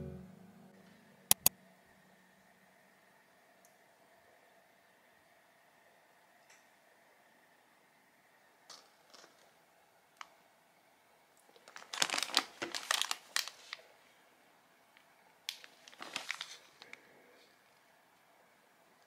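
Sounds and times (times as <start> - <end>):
plastic packaging crinkling: 11.5 - 13.8, 15.5 - 17.0.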